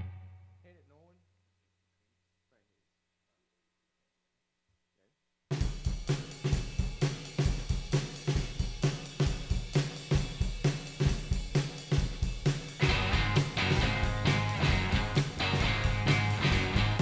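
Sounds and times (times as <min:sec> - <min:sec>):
bass guitar: 0:00.0 - 0:00.6, 0:12.8 - 0:17.0
rock drum kit beat: 0:05.5 - 0:17.0
electric guitar: 0:12.8 - 0:17.0.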